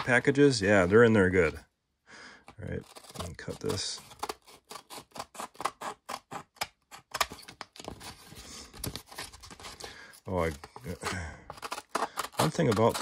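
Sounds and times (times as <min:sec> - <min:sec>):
scissors cutting sandpaper: 0:02.8 - 0:06.5, 0:11.5 - 0:13.0.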